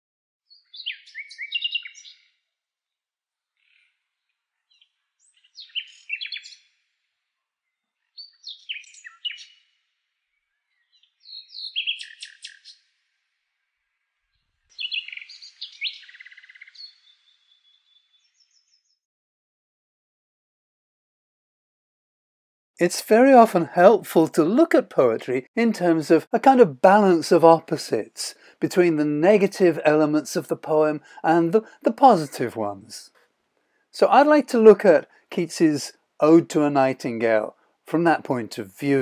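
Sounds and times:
nightingale singing: 0.5s - 2.3s, 4.7s - 6.7s, 8.1s - 9.6s, 10.5s - 12.9s, 14.7s - 19.0s.

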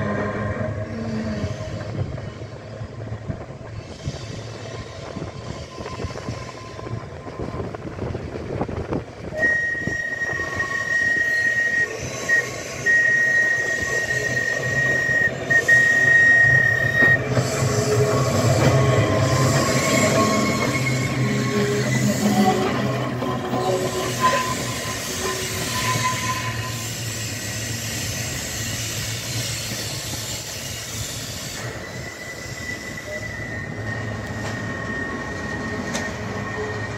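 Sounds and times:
tram running on street track: 0.0s - 36.9s.

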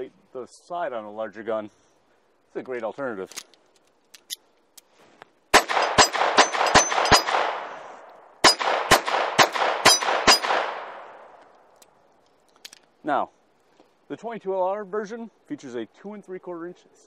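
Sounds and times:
pistol shots with echo: 5.5s - 11.4s
high rings of bullets on steel: 5.6s - 11.2s.

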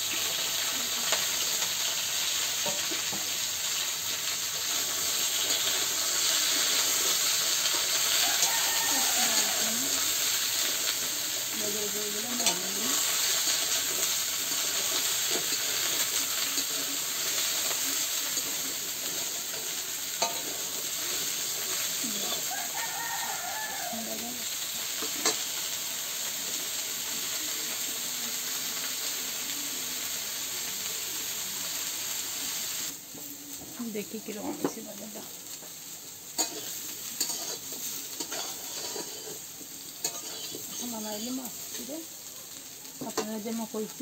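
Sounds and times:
vegetables sizzling in hot oil: 0.0s - 44.0s
spatula scraping pan: 12.3s - 23.2s, 36.4s - 41.9s.

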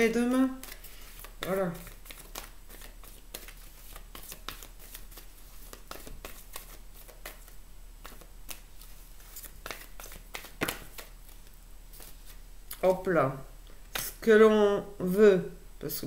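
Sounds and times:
cards being shuffled: 0.0s - 12.4s.

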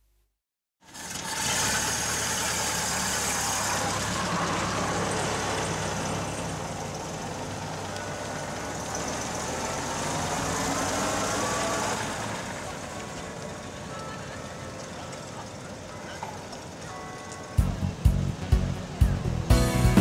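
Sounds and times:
car engines running low: 0.8s - 20.0s
street and tyre noise: 0.8s - 20.0s.

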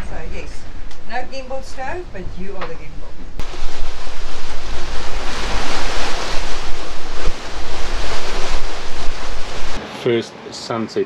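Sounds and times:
wind buffeting microphone: 0.0s - 9.8s
water rushing along hull: 3.4s - 9.8s.

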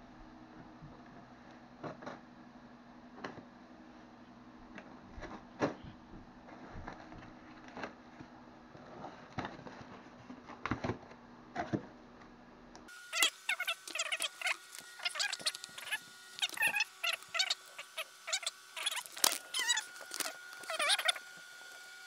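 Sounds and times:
crinkly handling noise: 13.5s - 22.0s
utility knife slitting packing tape: 18.4s - 21.2s.

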